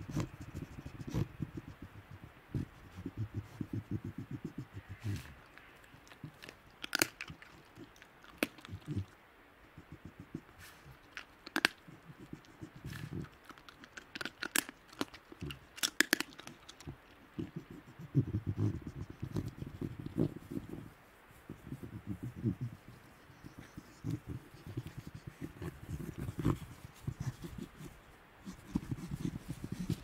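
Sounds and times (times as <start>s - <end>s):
jaws crunching bone: 4.9s - 9.1s, 11.0s - 20.4s.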